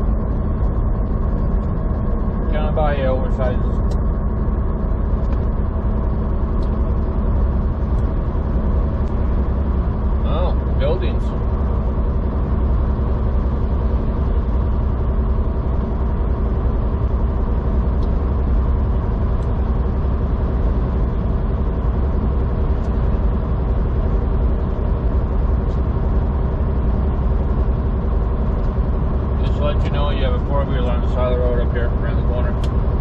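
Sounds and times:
truck engine and road hum: 0:00.0 - 0:33.0.

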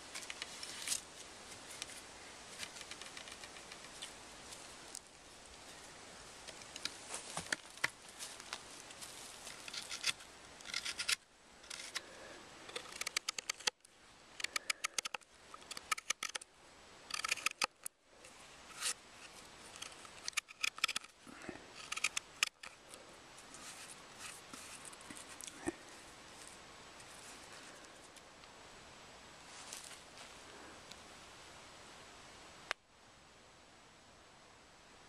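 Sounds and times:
adze blade cutting wood: 0:09.6 - 0:12.0, 0:12.7 - 0:13.8, 0:14.4 - 0:16.4, 0:17.1 - 0:17.9, 0:19.8 - 0:21.2, 0:21.8 - 0:22.7.

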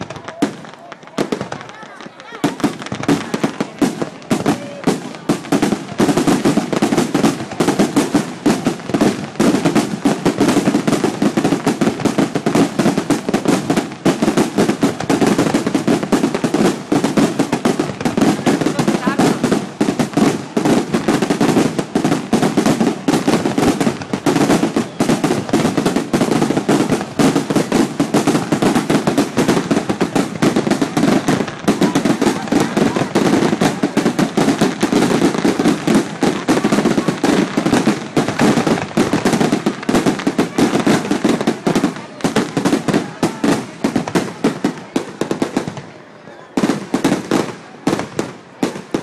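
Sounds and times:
fireworks bangs and crackles: 0:00.0 - 0:49.0.

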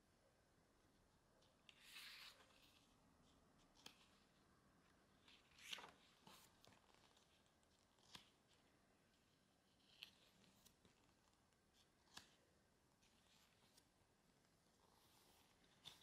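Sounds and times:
booklet cover swishing open: 0:05.3 - 0:07.3.

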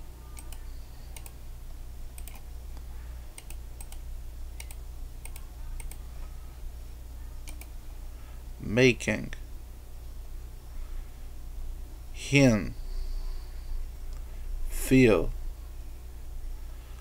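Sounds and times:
steady low hum: 0:00.0 - 0:17.0
mouse and keyboard clicks: 0:00.4 - 0:00.6, 0:02.2 - 0:02.4, 0:03.4 - 0:04.0.

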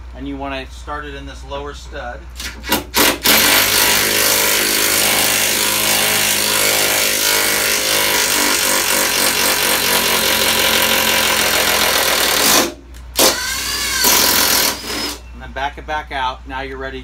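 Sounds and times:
cordless power driver running: 0:07.2 - 0:15.2.

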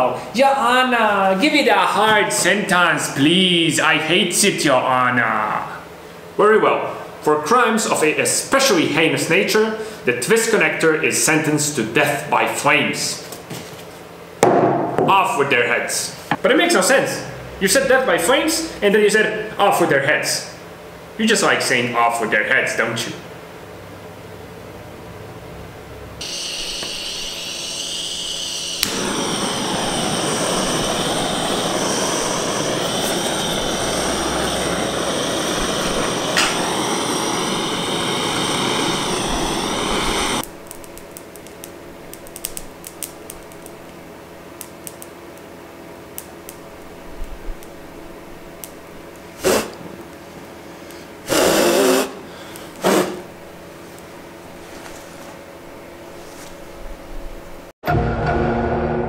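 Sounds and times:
sharp knock: 0:14.4 - 0:15.2
high hiss: 0:26.2 - 0:40.6, 0:49.4 - 0:49.8, 0:51.3 - 0:53.4
gas torch flame hissing: 0:26.2 - 0:43.9, 0:48.6 - 0:49.9, 0:50.8 - 0:53.6.

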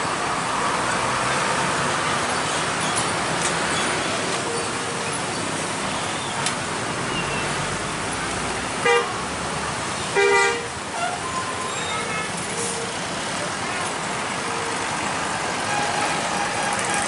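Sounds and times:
road traffic passing: 0:00.0 - 0:17.0
vehicle horn honking: 0:10.2 - 0:11.2.

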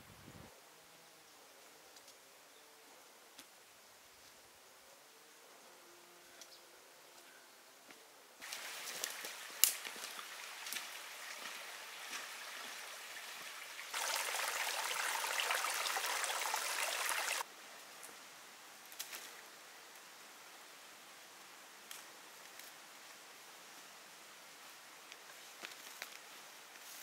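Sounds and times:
running water: 0:08.4 - 0:17.5.

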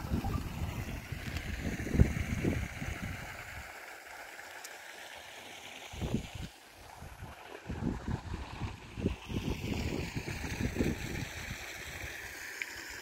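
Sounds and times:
wind buffeting microphone: 0:00.0 - 0:03.6, 0:06.0 - 0:12.0.

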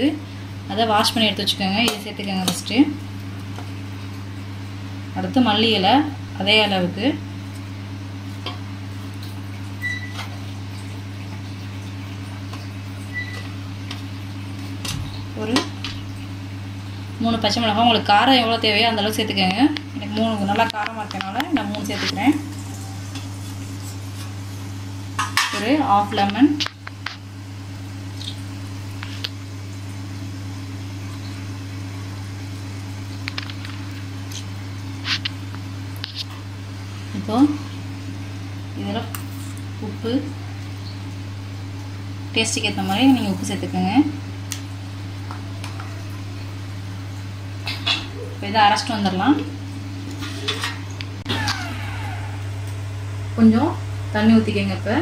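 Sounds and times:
low electrical hum: 0:00.0 - 0:55.0.

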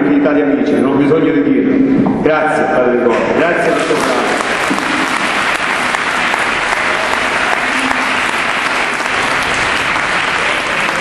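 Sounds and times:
crowd applauding: 0:03.7 - 0:11.0.

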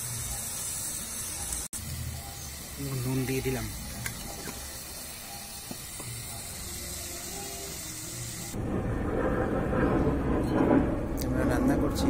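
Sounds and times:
food sizzling in a metal pan: 0:00.0 - 0:08.6
low rushing noise: 0:08.6 - 0:12.0.

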